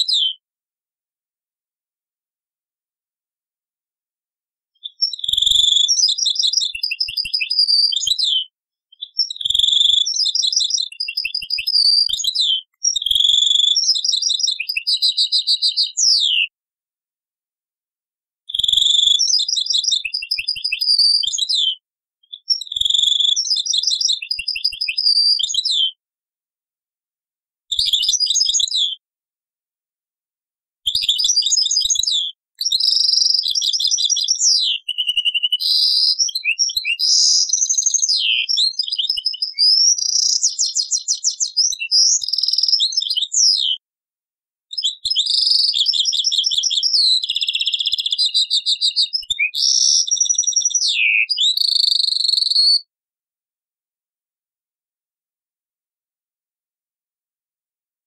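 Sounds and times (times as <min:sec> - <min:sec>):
finch twittering and trilling: 0:04.8 - 0:08.4, 0:09.0 - 0:16.5, 0:30.9 - 0:43.8, 0:44.8 - 0:52.6.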